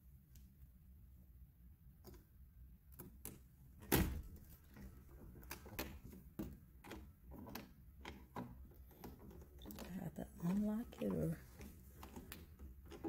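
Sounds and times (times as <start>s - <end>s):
door handle and lock rattling: 3.8s - 13.0s.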